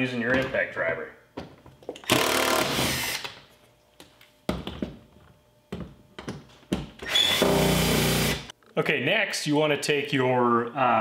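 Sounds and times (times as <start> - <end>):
impact driver running: 2.0 - 3.2, 7.0 - 8.5.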